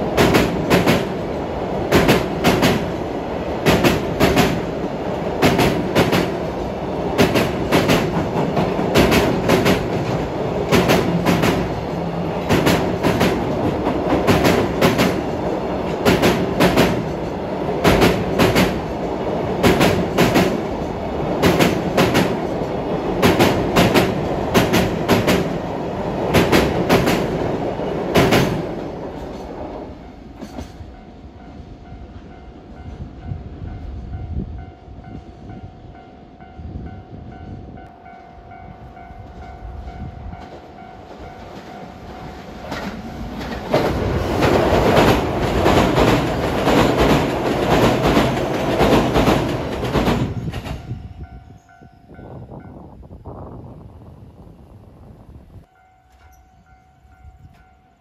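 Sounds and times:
freight train wheels clicking: 0.0s - 31.0s, 39.2s - 51.0s
electric train rail noise: 0.0s - 58.0s.

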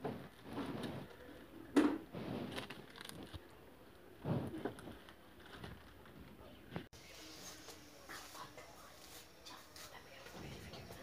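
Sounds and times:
plastic wrapping rustling: 2.3s - 3.5s.

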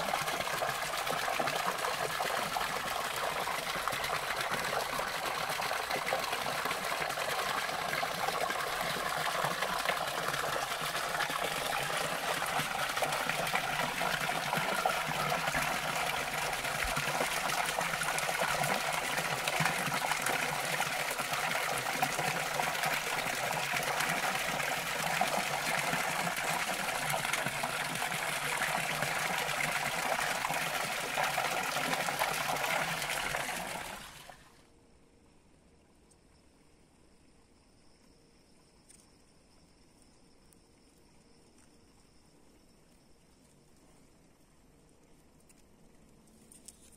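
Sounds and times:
water stream splashing into pool: 0.0s - 34.6s.

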